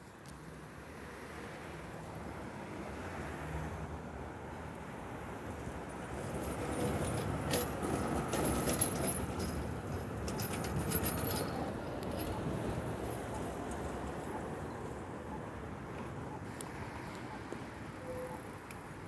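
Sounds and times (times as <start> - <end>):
tram wheels rumbling on rails: 5.8 - 16.2
metallic clicking and jingling: 6.4 - 13.2.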